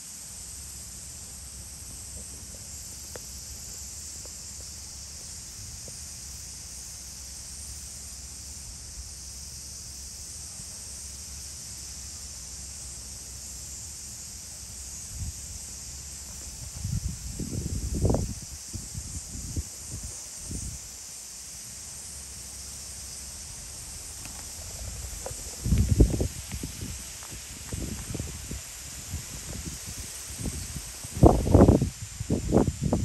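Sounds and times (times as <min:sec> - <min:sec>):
high hiss: 0:00.0 - 0:33.0
faint ticks: 0:02.1 - 0:06.1, 0:24.0 - 0:28.2
low bumps: 0:23.3 - 0:32.6.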